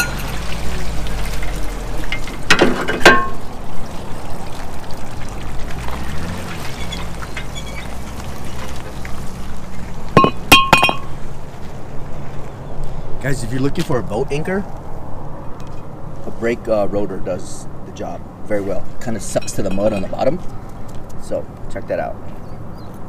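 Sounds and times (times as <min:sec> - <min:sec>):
water splashing and trickling: 0:00.0 - 0:12.6.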